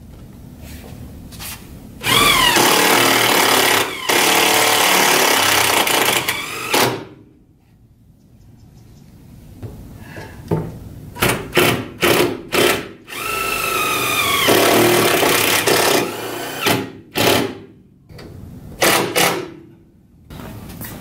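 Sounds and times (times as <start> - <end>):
power drill whining: 2.0 - 6.9, 13.1 - 16.7.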